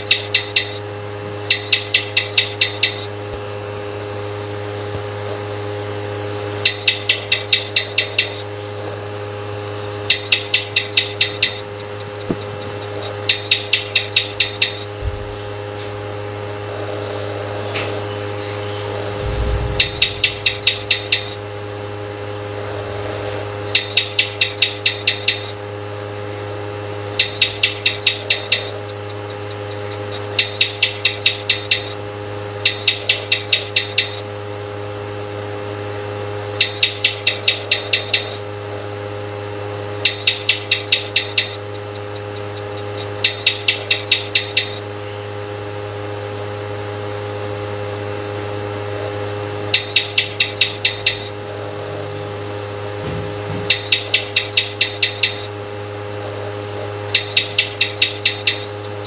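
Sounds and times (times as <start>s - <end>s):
lizard chirping clicks: 0.0s - 0.8s, 1.5s - 3.1s, 6.6s - 8.7s, 10.0s - 15.4s, 19.2s - 21.4s, 23.8s - 25.6s, 27.2s - 29.3s, 29.9s - 32.0s, 32.6s - 34.2s, 36.6s - 38.4s, 40.0s - 45.6s, 49.7s - 51.4s, 53.6s - 55.5s, 57.1s - 59.0s
electrical hum: 0.0s - 59.0s
low thump: 15.0s - 15.6s, 19.2s - 20.9s.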